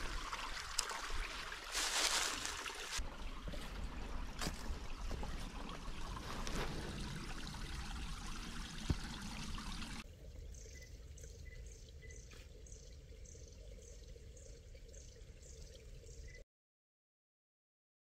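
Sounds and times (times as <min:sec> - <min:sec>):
stream trickling: 0:00.0 - 0:16.4
faint high chirp: 0:10.5 - 0:13.6.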